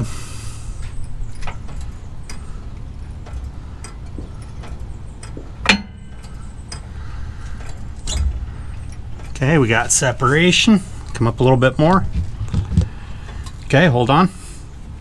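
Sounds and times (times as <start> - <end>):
metal clank: 3.1 - 6.8.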